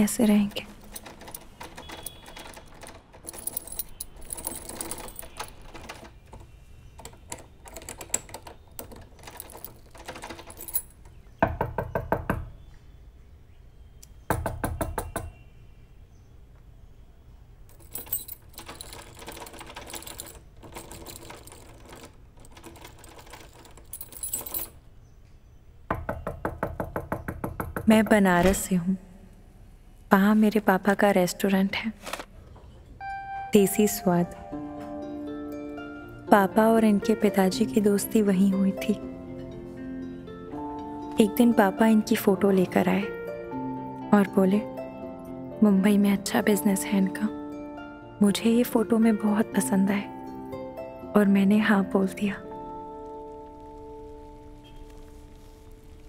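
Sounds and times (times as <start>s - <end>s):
rapid knocking: 25.9s - 28.2s.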